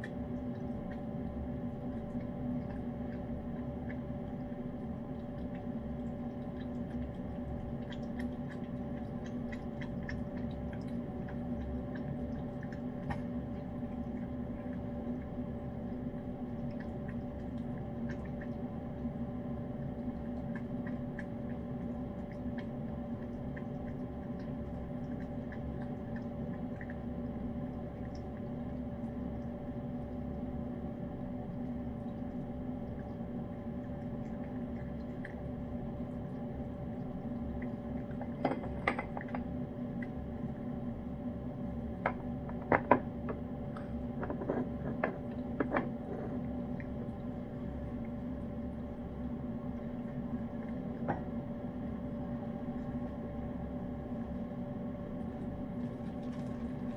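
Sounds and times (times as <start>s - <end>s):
cat licking and chewing: 0.0s - 30.4s
steady hum: 0.0s - 56.9s.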